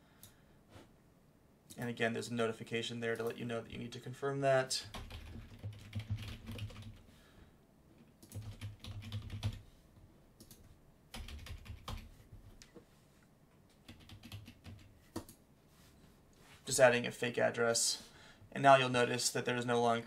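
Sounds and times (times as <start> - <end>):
typing on keyboard: 4.9 - 7.0, 8.0 - 9.6, 10.4 - 12.1, 13.8 - 15.4.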